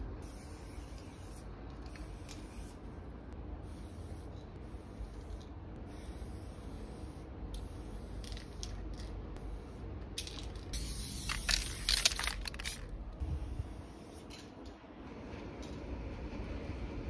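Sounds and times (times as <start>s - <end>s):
spray paint can hissing: 0.2s - 2.8s, 3.7s - 12.8s.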